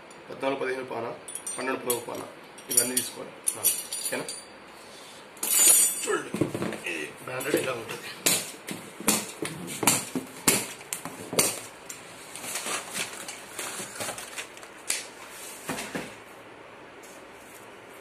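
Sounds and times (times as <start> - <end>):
cardboard rustling and scraping: 11.0 - 16.3.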